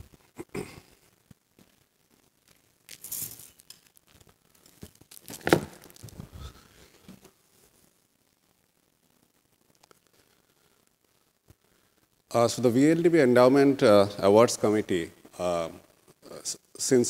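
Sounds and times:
microphone handling rustling and clicking: 4.8 - 7.3.

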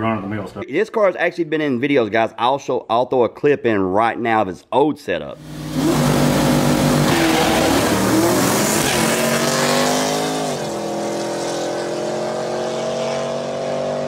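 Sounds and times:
drag cars accelerating: 5.4 - 14.0.

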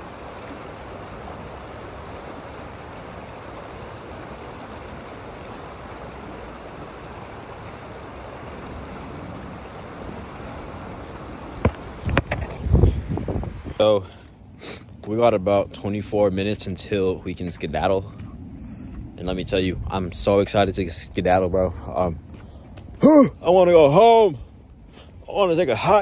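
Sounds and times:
water rushing over rocks: 0.0 - 14.0.

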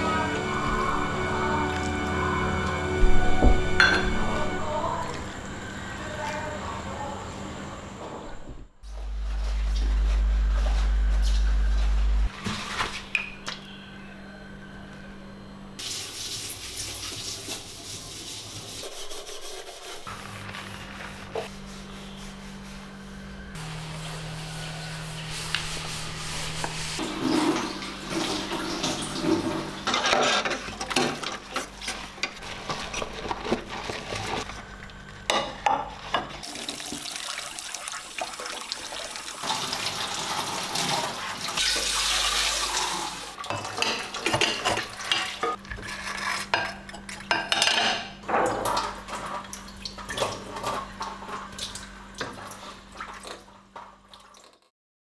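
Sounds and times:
dishes clinking: 3.5 - 4.4, 46.5 - 48.8
tap water running and splashing: 15.8 - 18.7, 36.4 - 45.6, 48.4 - 54.7.

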